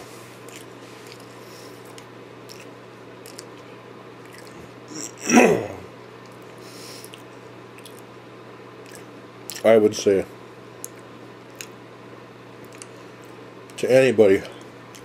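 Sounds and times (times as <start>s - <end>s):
steady low hum: 0.0s - 15.0s
mouth chewing sounds: 0.4s - 5.3s, 6.2s - 8.1s, 8.8s - 9.7s, 12.6s - 13.0s
man groaning: 4.9s - 5.9s.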